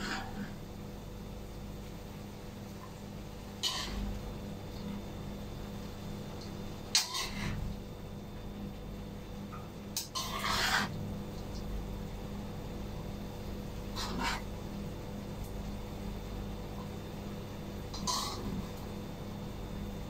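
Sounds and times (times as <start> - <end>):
spatula scraping a wok: 0.0 - 0.6, 3.6 - 4.2, 6.9 - 7.6, 10.0 - 11.0, 13.9 - 14.5, 17.9 - 18.6
steady low hum: 0.0 - 20.0.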